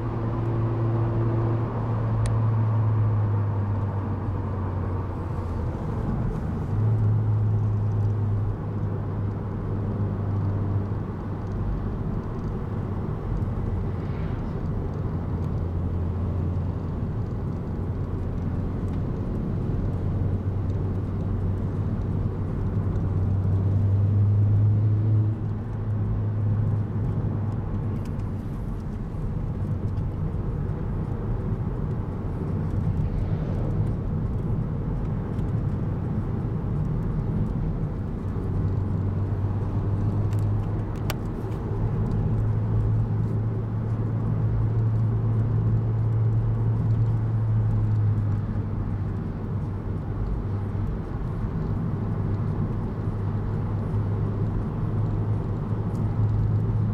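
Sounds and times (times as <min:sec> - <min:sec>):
car engine drone: 0:00.0 - 0:56.9
road rumble: 0:00.0 - 0:56.9.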